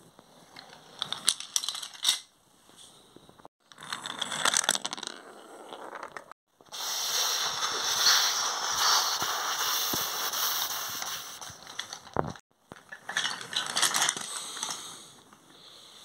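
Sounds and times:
wooden toy trains clattering on track: 0:00.5 - 0:02.3, 0:11.6 - 0:14.8.

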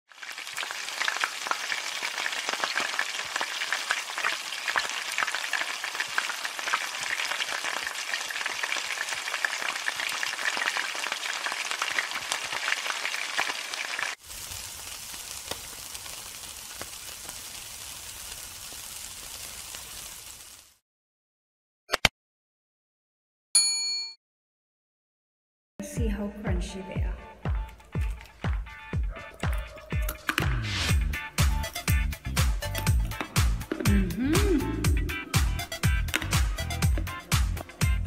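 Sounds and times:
food sizzling in hot oil: 0:00.1 - 0:20.8, 0:30.2 - 0:37.8
meat skewers sizzling on a grill: 0:00.1 - 0:20.8.

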